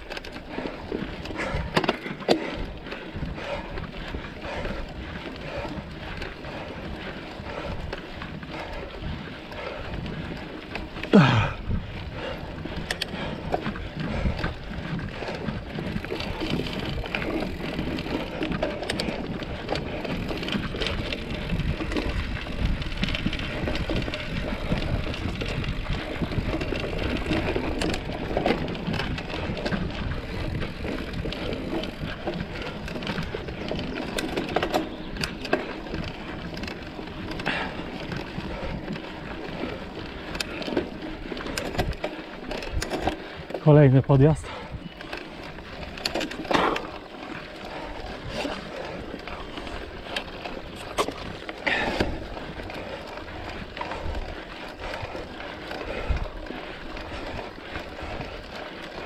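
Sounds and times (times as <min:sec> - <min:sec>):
bike tyres rolling on trail: 0:00.0 - 0:59.0
bike knocks and rattles: 0:00.1 - 0:03.7, 0:10.7 - 0:43.3, 0:49.4 - 0:54.1.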